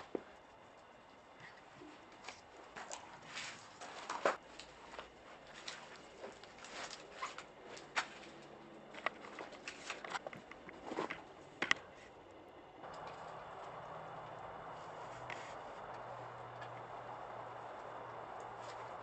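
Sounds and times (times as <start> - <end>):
footsteps crunching over debris: 1.5 - 11.3.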